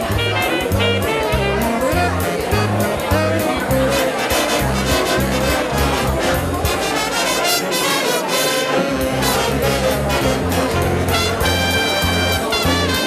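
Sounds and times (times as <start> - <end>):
bass line: 0.0 - 7.6, 8.7 - 13.0
jazz band with brass: 0.0 - 13.0.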